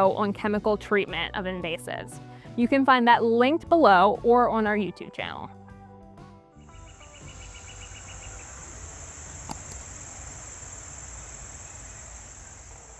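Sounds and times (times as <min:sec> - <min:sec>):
high-pitched insect buzz: 0:06.7 - 0:12.9
pulsed insect chirping: 0:06.7 - 0:12.9.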